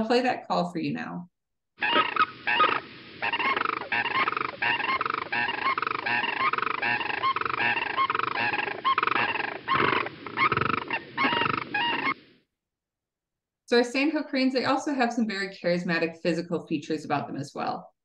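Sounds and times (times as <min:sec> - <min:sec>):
cranes calling with rattling notes: 0:01.8 - 0:12.3.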